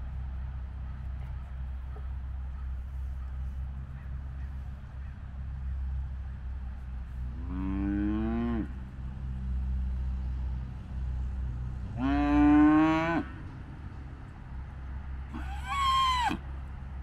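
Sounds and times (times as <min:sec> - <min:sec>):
cattle mooing: 0:07.4 - 0:08.7, 0:12.0 - 0:13.3, 0:15.3 - 0:16.4.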